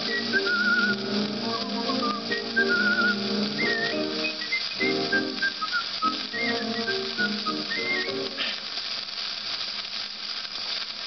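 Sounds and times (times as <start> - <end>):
piano song with whistling: 0.0 - 8.4
vinyl surface hiss: 0.0 - 11.0.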